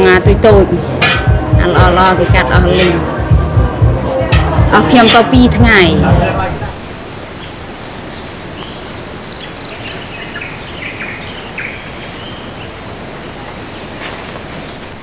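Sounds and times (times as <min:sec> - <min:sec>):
insect chorus drone: 0:06.4 - 0:15.0.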